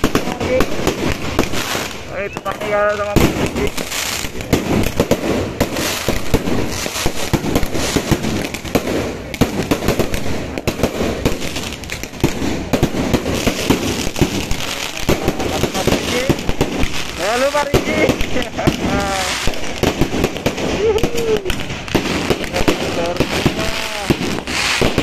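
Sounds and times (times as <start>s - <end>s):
fireworks and firecrackers banging: 0.0s - 25.0s.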